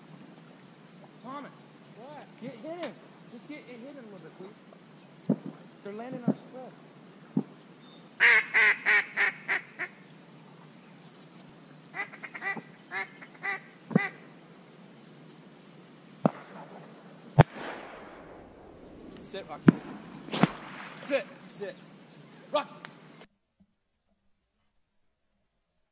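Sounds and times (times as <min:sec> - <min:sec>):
duck quacking: 0:08.2 - 0:10.0, 0:11.9 - 0:14.2
sharp cracks with echo: 0:16.2 - 0:21.5.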